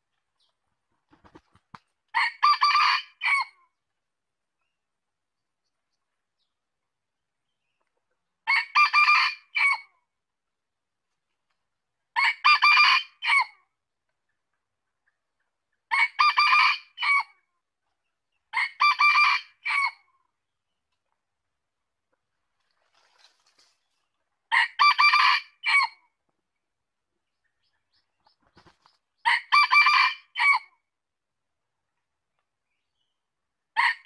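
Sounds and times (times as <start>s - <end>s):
rooster crowing: 24.5s - 25.9s, 29.3s - 30.7s.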